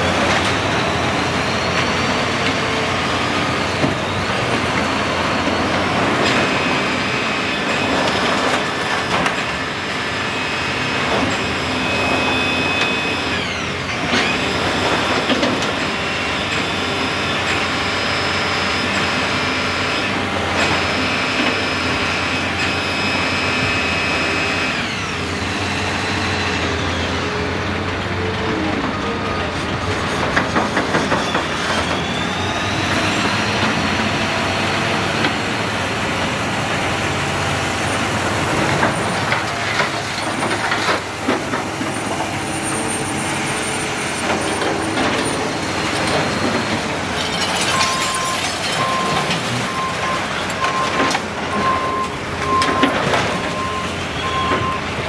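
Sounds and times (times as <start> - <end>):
excavator diesel engine running: 0.0 - 55.0
metal squeals and scrapes: 29.3 - 34.0, 37.3 - 54.9.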